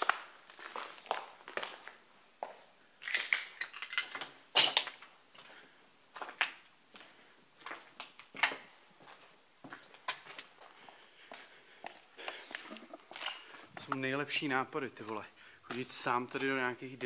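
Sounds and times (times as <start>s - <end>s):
footsteps crunching on rubble: 0.0s - 3.6s, 4.7s - 17.0s.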